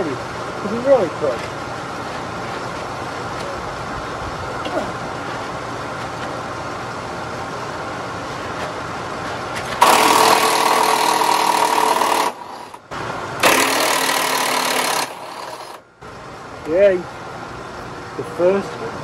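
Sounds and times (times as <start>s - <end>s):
steady background noise: 0.0s - 19.0s
impact wrench running: 9.8s - 12.8s, 13.4s - 15.8s.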